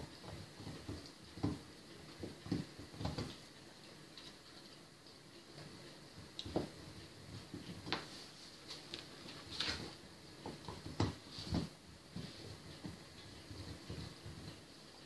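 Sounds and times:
puppies chewing and tugging cloth: 0:00.0 - 0:15.0.

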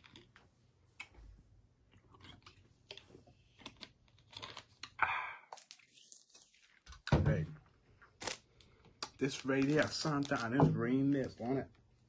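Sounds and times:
chewing crunchy snacks: 0:00.0 - 0:01.1, 0:01.8 - 0:06.4.

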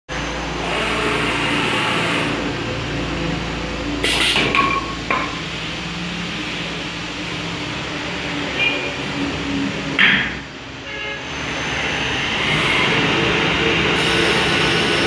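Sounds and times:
metallic clank with ringing: 0:04.5 - 0:05.4
lathe cutter hissing on wood: 0:11.6 - 0:15.0.

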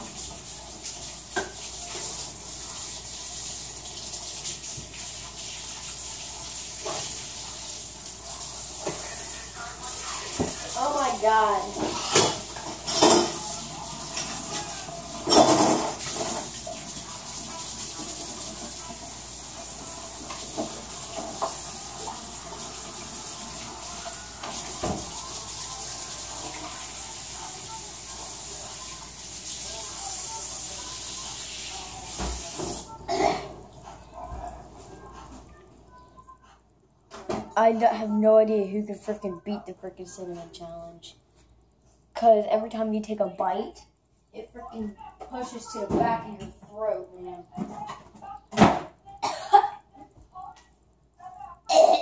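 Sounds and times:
kitchen tap running: 0:00.0 - 0:35.5.

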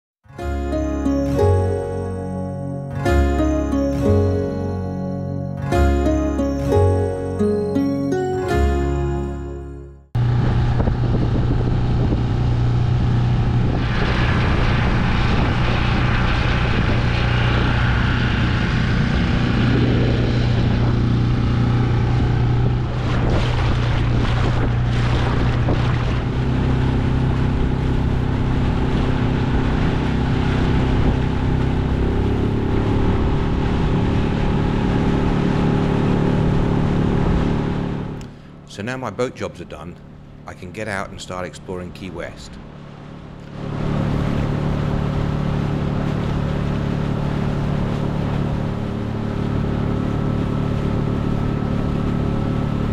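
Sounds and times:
wind on microphone: 0:10.2 - 0:31.6
outboard motor running: 0:10.2 - 0:38.6, 0:42.6 - 0:52.9
water splashing along hull: 0:10.2 - 0:38.6, 0:42.6 - 0:52.9.

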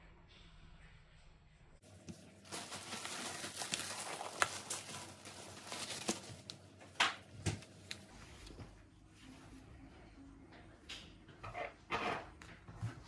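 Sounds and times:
plastic bag crinkling: 0:01.9 - 0:08.1.

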